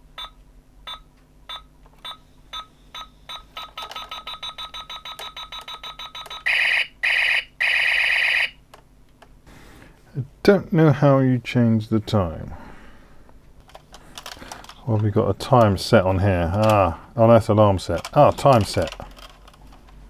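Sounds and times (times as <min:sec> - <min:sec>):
electronic beeps from toy speaker: 0:00.9 - 0:08.5
long loud electronic tones: 0:03.8 - 0:08.6.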